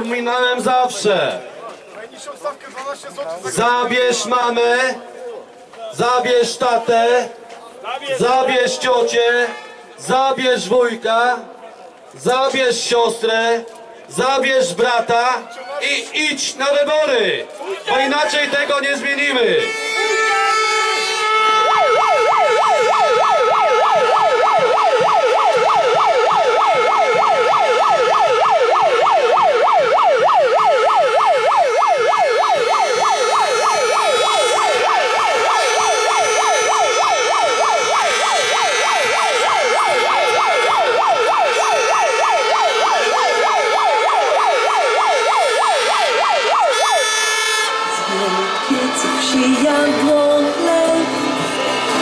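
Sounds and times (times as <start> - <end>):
megaphone electronic siren: 17.9 - 52.0.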